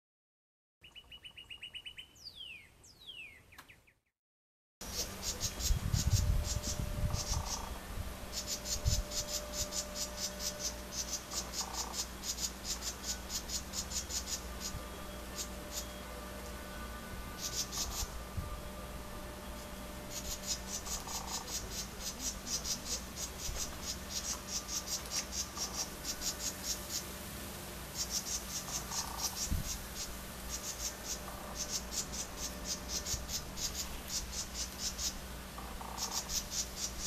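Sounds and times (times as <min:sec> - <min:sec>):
wren harsh chatter calls: 0:04.8 - 0:16.4, 0:17.3 - 0:18.3, 0:19.6 - 0:27.2, 0:27.8 - 0:37.0.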